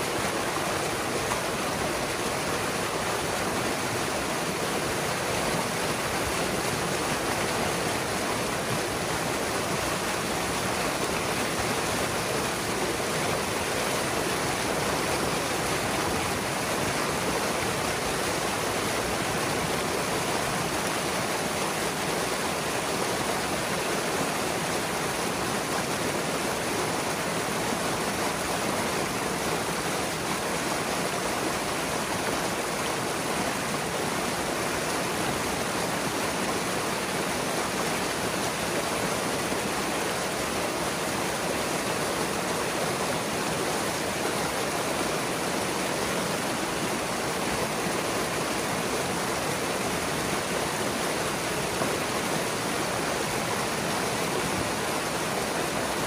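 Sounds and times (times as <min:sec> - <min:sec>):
water rushing into foaming pool: 0:00.0 - 0:56.0.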